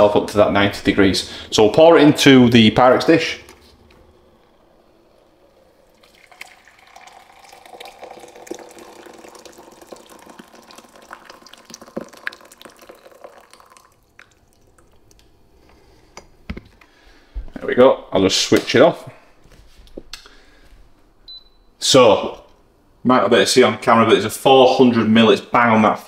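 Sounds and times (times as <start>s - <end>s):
water pouring into glass jug: 4.4s - 15.2s.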